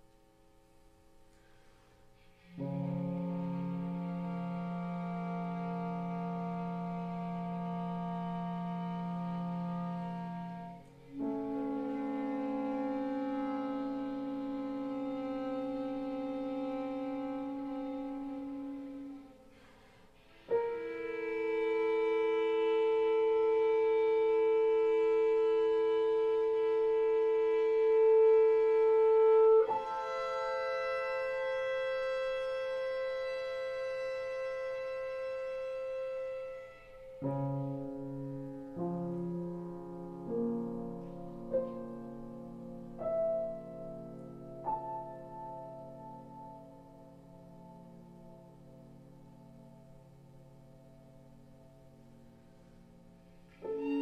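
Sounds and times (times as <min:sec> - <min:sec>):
violin bowing: 0:02.4 - 0:39.0, 0:53.5 - 0:54.0
chamber music: 0:02.4 - 0:54.0.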